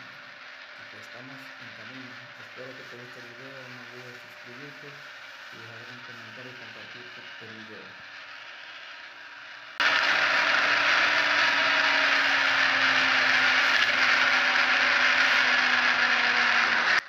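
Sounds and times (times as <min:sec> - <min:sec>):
vehicle mechanical rattling and whirring: 0:00.0 - 0:10.0.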